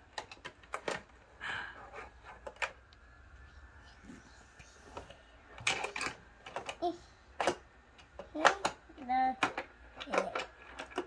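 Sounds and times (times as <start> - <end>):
plastic toy track clicks and rattles: 0.0 - 1.2, 5.6 - 11.0.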